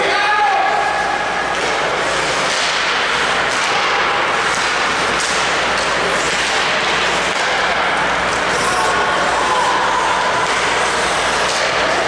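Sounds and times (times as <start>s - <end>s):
sticks and puck clacking: 1.5s - 12.0s.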